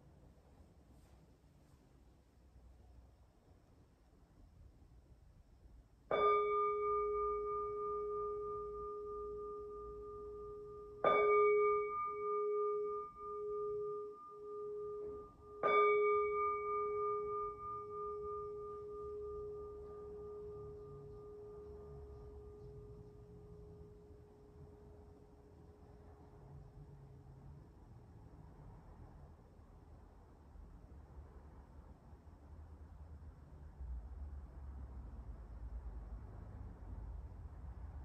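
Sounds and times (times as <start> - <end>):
temple bowl bell ringing: 6.1 - 27.2.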